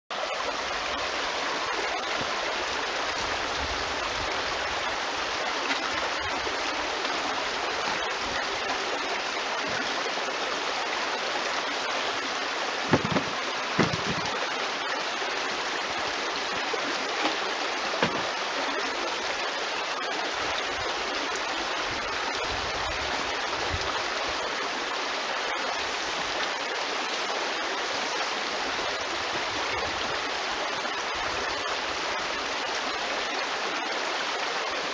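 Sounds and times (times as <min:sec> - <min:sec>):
stream running over stones: 0:00.1 - 0:34.9
brief thumps: 0:12.9 - 0:14.4.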